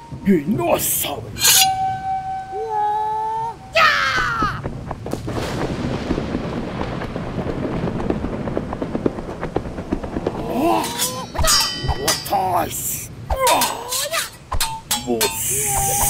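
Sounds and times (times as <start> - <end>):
short gliding tones: 0.0 - 4.2
sharp strokes: 1.4 - 2.9, 14.5 - 16.0
dense crackling pops: 3.6 - 16.0.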